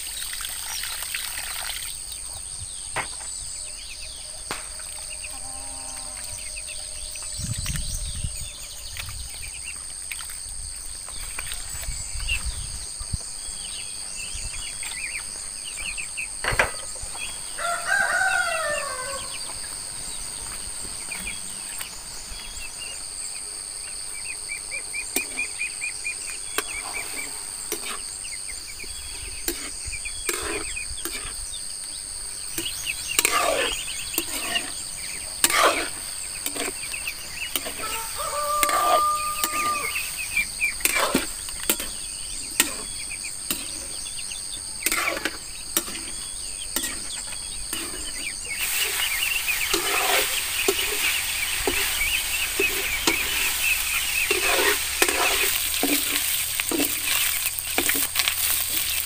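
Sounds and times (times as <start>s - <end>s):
high-pitched insect drone: 2.6s - 12.9s
rooster crowing: 17.5s - 19.6s, 37.7s - 40.2s.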